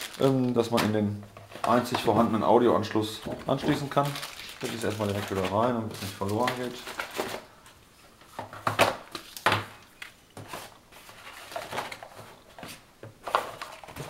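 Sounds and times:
paper leaflets rustling: 0.0s - 7.5s, 10.4s - 14.0s.

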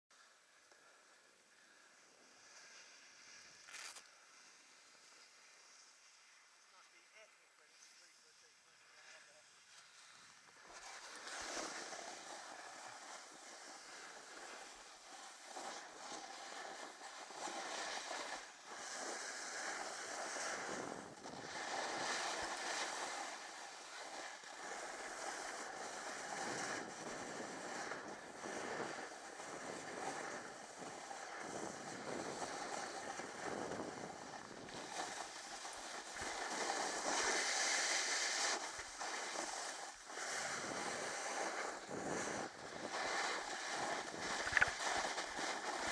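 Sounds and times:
snowboard scraping over snow: 1.9s - 7.2s, 7.8s - 45.9s
wind on microphone: 26.3s - 36.5s, 40.2s - 45.9s.

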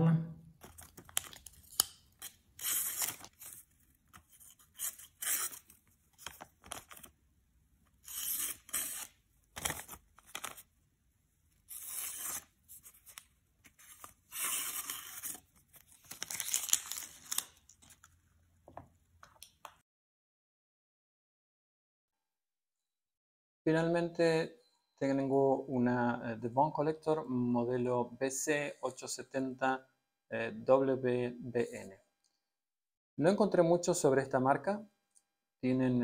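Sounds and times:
knife slicing paper: 1.8s - 7.0s, 8.0s - 10.6s, 11.6s - 17.5s.

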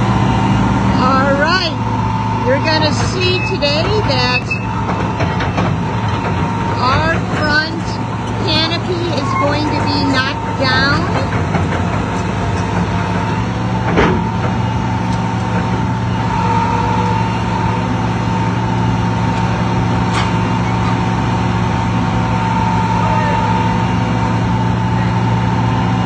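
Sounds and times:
excavator diesel engine running: 0.0s - 26.0s.

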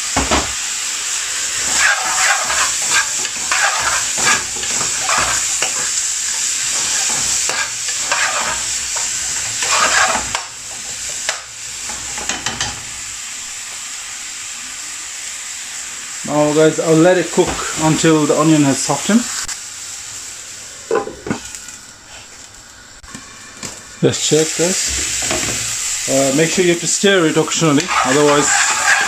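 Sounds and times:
vegetables sizzling in oil: 0.0s - 29.0s
metal spatula scraping pan: 1.6s - 6.0s, 6.7s - 10.5s, 27.8s - 29.0s.

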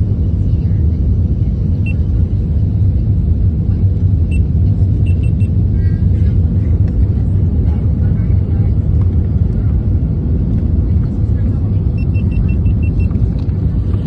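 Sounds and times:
airliner cabin rumble: 0.0s - 14.0s.

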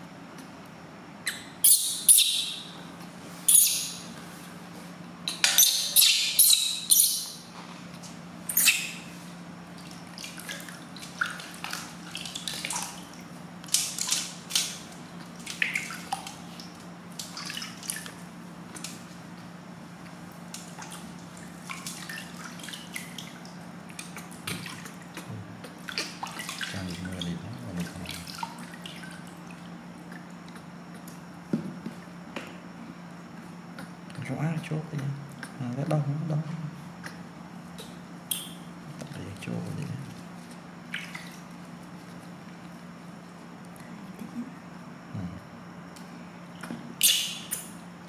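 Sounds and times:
baby monkey squeaking: 1.3s - 2.7s, 3.5s - 4.0s, 5.6s - 7.4s, 8.5s - 9.0s, 47.0s - 47.5s.

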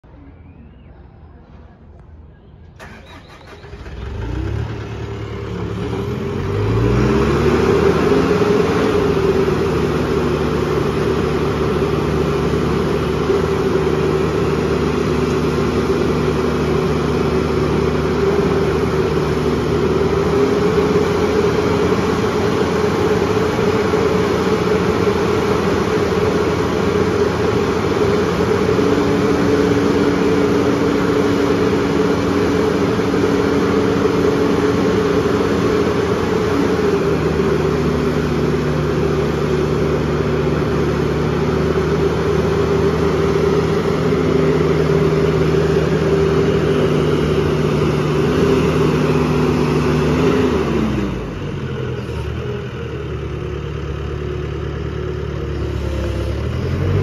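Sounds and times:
diesel engine starting and running: 0.0s - 57.0s
hydraulic whine: 55.3s - 57.0s.

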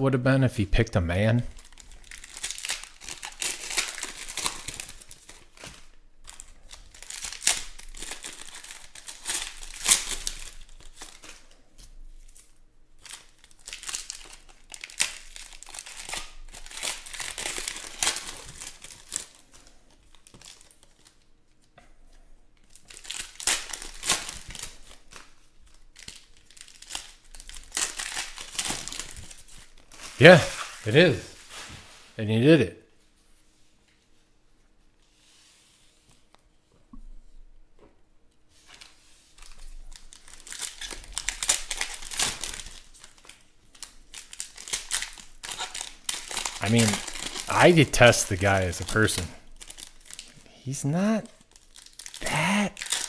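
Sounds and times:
foil packs crinkling and tearing: 1.5s - 11.6s, 12.2s - 21.2s, 22.7s - 31.7s, 38.8s - 50.4s, 51.4s - 53.0s.

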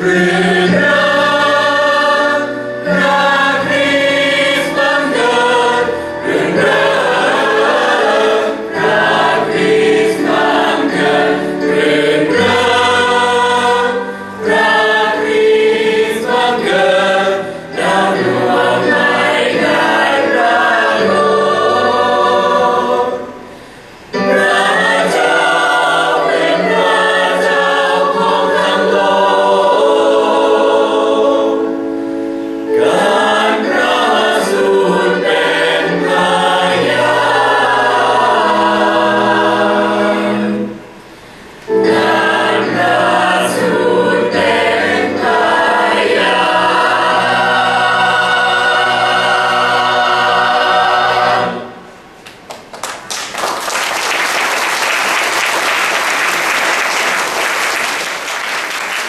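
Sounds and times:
choir singing held chords: 0.0s - 52.2s
audience applauding: 52.2s - 59.0s.

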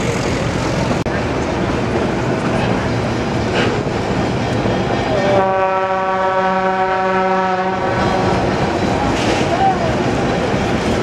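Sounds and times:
train rolling along track: 0.0s - 11.0s
train horn blast: 5.2s - 8.3s.

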